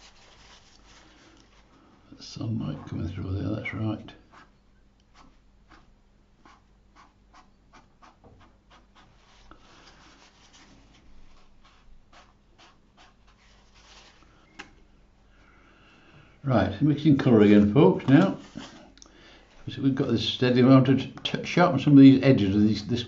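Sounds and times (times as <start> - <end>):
tissue rubbing on paper: 0.0 - 1.9, 5.1 - 14.3, 17.4 - 18.9.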